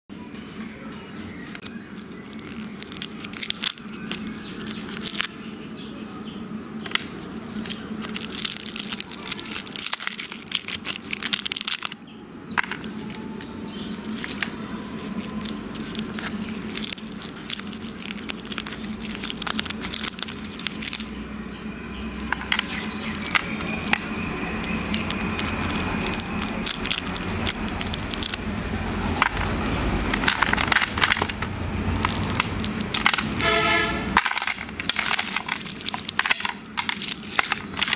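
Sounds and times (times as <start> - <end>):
plastic wrappers crinkling: 1.4 - 5.4, 6.9 - 12.0, 12.6 - 21.2, 22.1 - 37.9.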